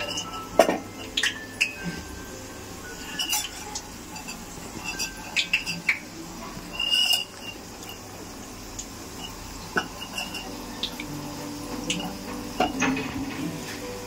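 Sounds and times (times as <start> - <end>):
metal spoon clinking on bowl: 0.0 - 2.0, 2.9 - 6.0, 9.2 - 10.6.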